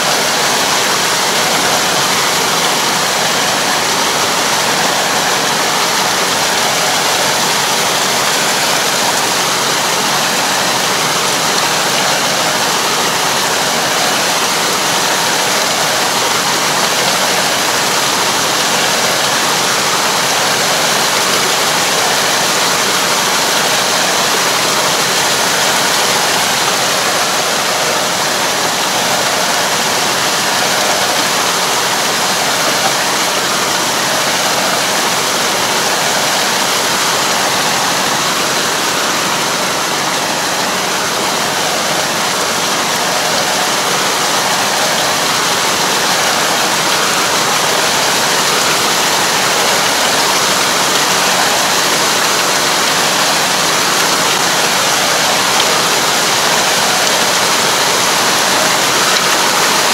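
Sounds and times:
muddy water churning and splashing: 0.0s - 59.9s.

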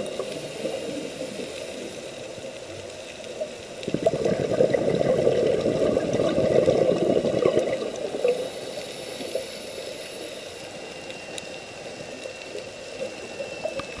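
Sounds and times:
faint clicks: 0.0s - 4.3s, 7.4s - 14.0s
underwater bubbling and gurgling: 0.0s - 14.0s
underwater hiss: 0.0s - 14.0s.

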